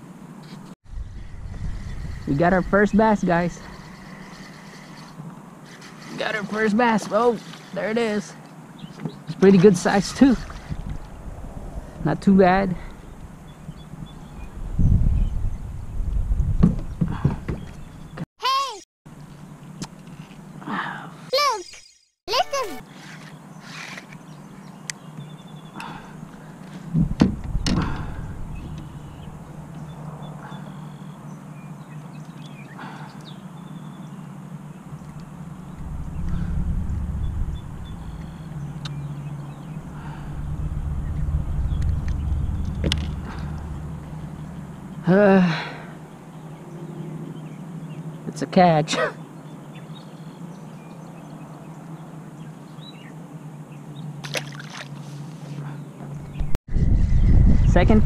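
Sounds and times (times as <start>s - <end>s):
faint hum of water and hull: 3.6s - 7.8s, 8.4s - 11.3s, 22.9s - 45.1s, 49.2s - 56.3s
low steady hum: 33.6s - 46.4s
fish splashing in water: 54.2s - 55.2s.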